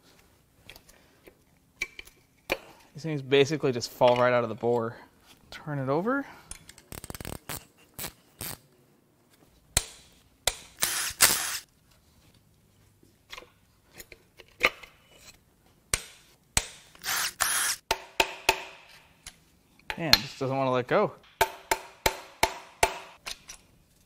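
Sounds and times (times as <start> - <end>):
handheld power tool bursts: 10.8 - 11.6, 17.0 - 17.8.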